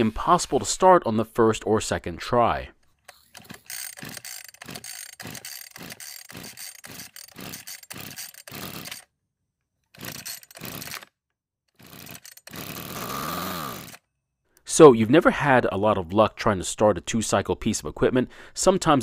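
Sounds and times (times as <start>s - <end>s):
pull-start cord ratcheting: 3.0s - 9.1s, 9.9s - 14.0s
engine turning over: 3.4s - 9.0s, 11.8s - 14.0s.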